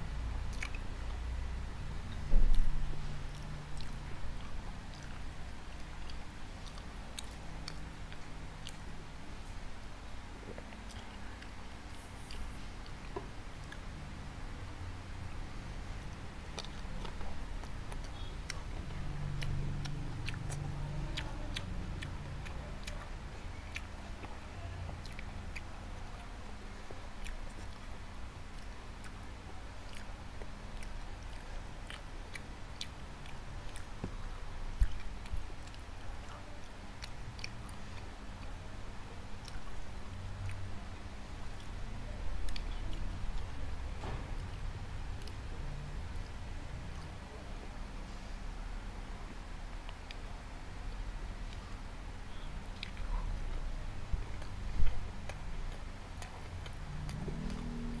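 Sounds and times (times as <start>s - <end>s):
wet mouth clicks: 0.5s - 0.9s, 34.8s - 35.8s, 52.7s - 53.6s
person chewing: 0.5s - 1.2s, 2.1s - 9.6s, 10.4s - 13.9s, 16.0s - 26.3s, 27.2s - 36.4s, 37.0s - 38.6s, 39.4s - 40.7s, 41.4s - 43.6s, 45.2s - 45.5s, 52.3s - 58.0s.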